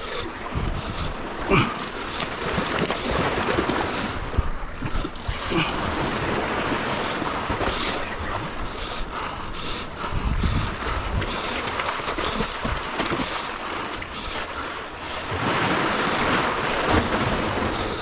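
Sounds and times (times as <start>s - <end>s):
sea water washing against shore: 0.0s - 18.0s
wind buffeting microphone: 0.2s - 1.4s, 2.4s - 13.2s.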